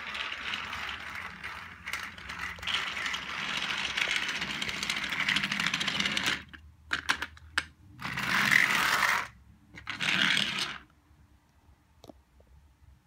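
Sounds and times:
toy train motor whirring: 0.0s - 6.5s, 8.0s - 10.8s.

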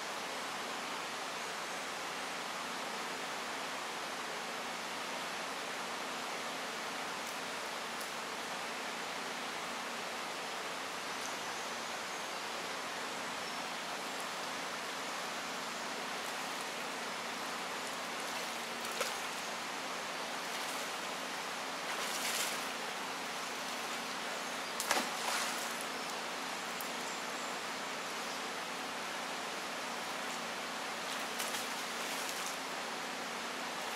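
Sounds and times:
river rushing over stones: 11.9s - 27.0s, 27.6s - 33.9s.

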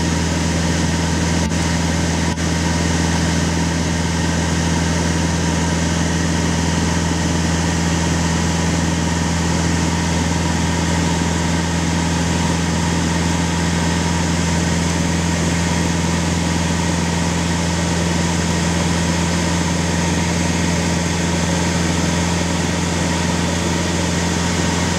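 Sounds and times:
propeller plane engine drone: 0.0s - 24.9s.

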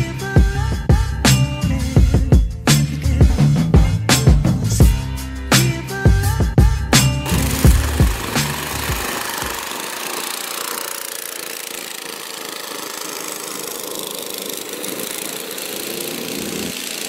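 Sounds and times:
go-kart engines droning: 7.2s - 17.0s.

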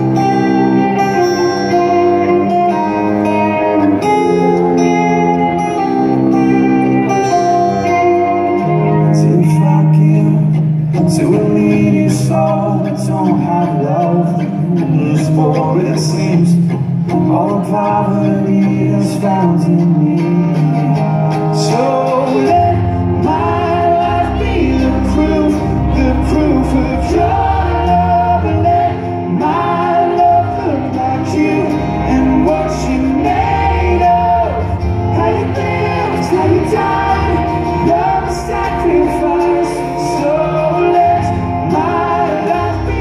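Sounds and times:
acoustic guitar: 0.0s - 43.0s
man singing lead vocals: 0.0s - 43.0s
heavy bass line: 19.7s - 43.0s.

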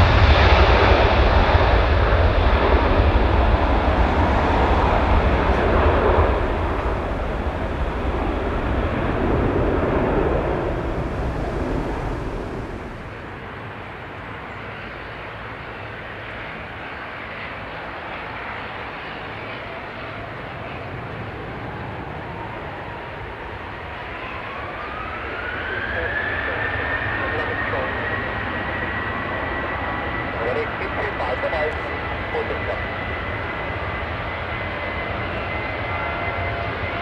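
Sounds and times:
jet engines at takeoff thrust: 0.0s - 37.0s
jet engines spooling up whine: 0.0s - 37.0s.

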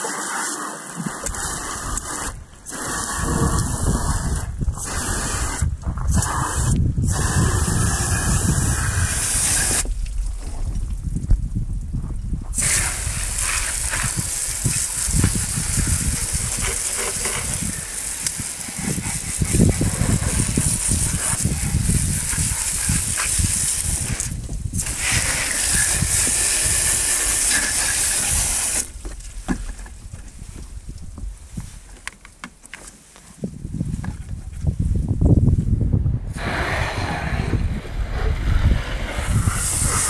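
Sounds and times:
hose nozzle spraying water: 0.0s - 9.9s, 12.5s - 29.1s, 36.3s - 40.0s.

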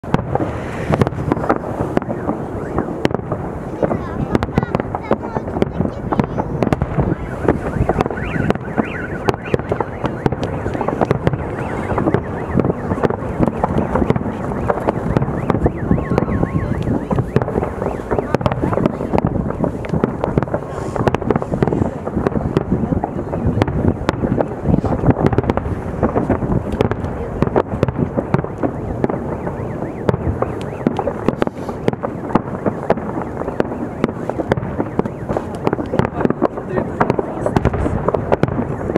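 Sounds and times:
continuous rumble: 0.0s - 38.9s
fireworks bangs and cracks: 0.0s - 38.9s
warbling whistle: 7.0s - 18.4s.

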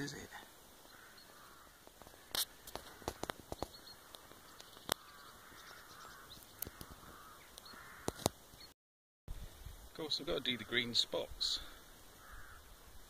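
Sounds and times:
crows cawing: 0.8s - 8.4s, 10.3s - 13.0s.

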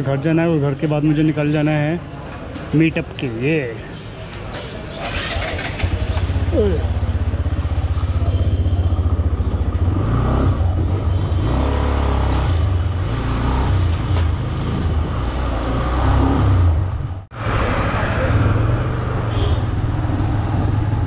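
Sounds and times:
motorcycle engine revving: 4.8s - 21.0s.

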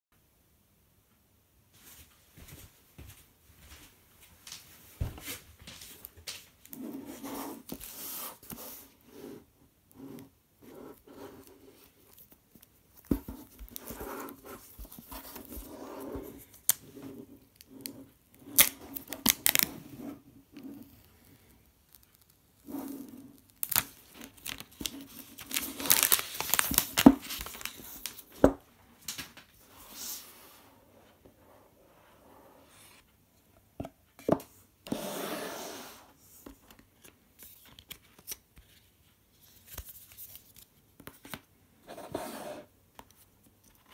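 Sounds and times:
plastic film crinkling and tearing: 18.6s - 19.7s, 23.3s - 28.3s.

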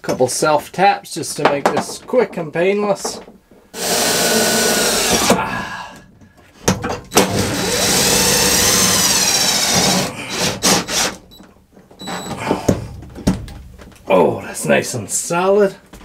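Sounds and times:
cordless drill motor whine: 3.8s - 5.3s, 7.2s - 11.0s.

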